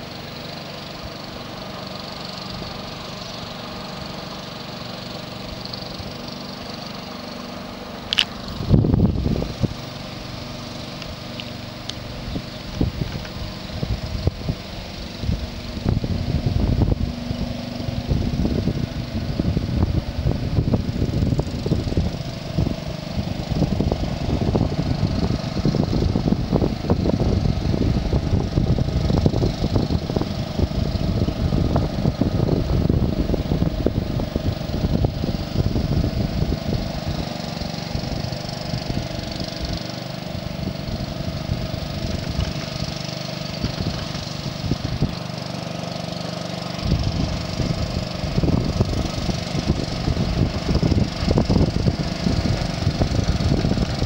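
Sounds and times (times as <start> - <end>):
small engine running: 0.0 - 54.0
rough low rumble: 8.0 - 39.1.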